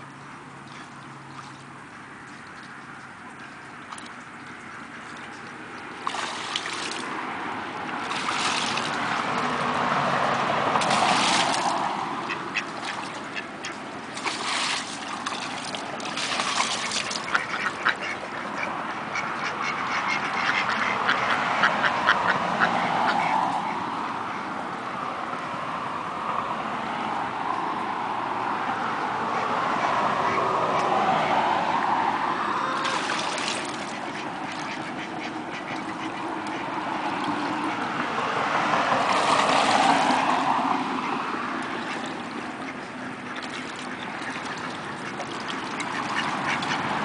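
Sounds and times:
ducks splashing in water: 0.6s - 24.4s, 29.6s - 47.0s
ducks quacking: 10.8s - 14.8s, 16.2s - 24.5s, 32.8s - 38.7s, 41.0s - 47.0s.

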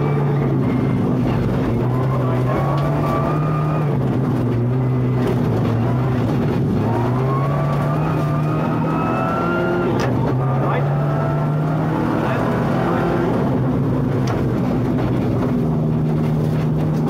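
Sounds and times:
rally car engine revving: 0.0s - 17.0s
road noise: 0.0s - 17.0s.

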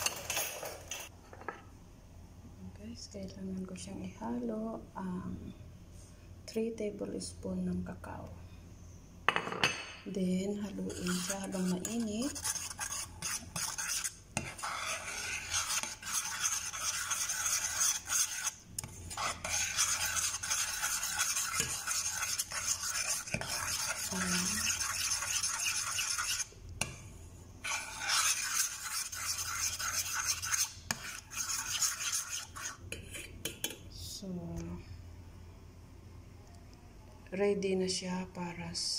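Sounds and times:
spoon scraping a steel saucepan: 10.8s - 26.5s, 27.6s - 33.8s.

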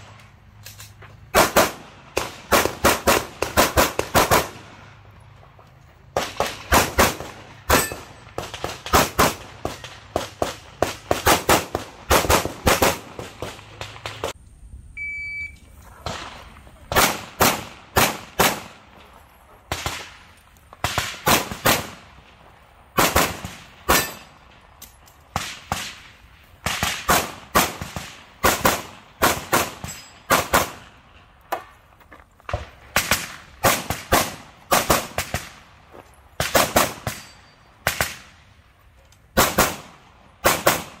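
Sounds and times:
rapid pistol fire: 1.4s - 4.6s, 6.2s - 14.3s, 16.9s - 18.7s, 20.8s - 22.0s, 23.0s - 24.2s, 26.6s - 30.8s, 39.4s - 41.0s
short electronic beep: 14.9s - 15.7s.

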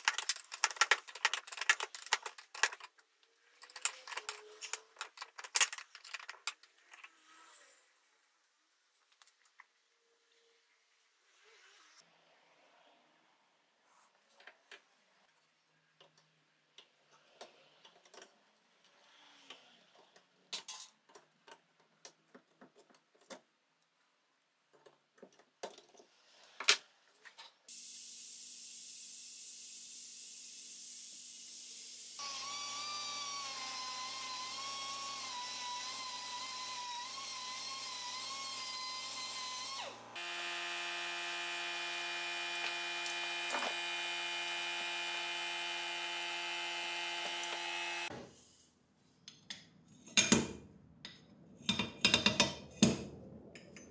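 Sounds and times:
small electric power tool running: 27.7s - 48.1s.

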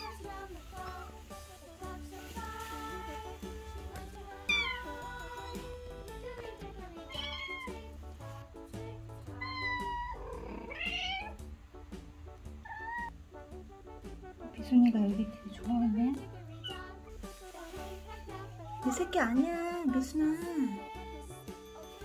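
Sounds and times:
background music: 0.0s - 22.0s
kitten meowing: 4.5s - 5.0s, 7.1s - 7.8s, 9.4s - 11.4s, 12.6s - 13.1s.

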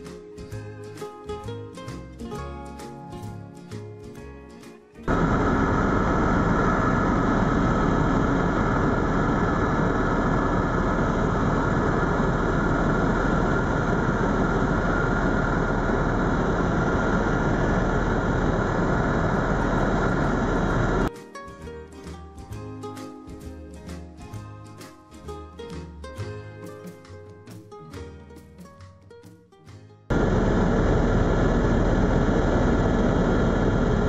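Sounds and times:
helicopter drone inside cabin: 5.1s - 21.1s, 30.1s - 34.0s.

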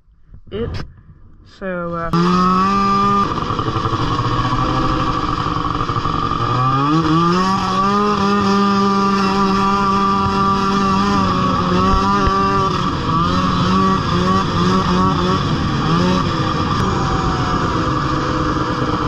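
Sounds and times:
snowmobile engine running hard: 2.1s - 19.0s.

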